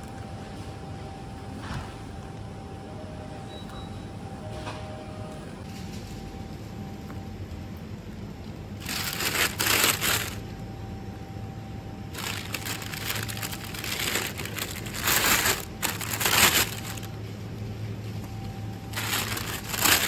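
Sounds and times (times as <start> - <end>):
steady low hum: 0.0 - 20.0
rustling crinkling noise: 7.4 - 10.5, 12.1 - 17.2, 18.0 - 20.0.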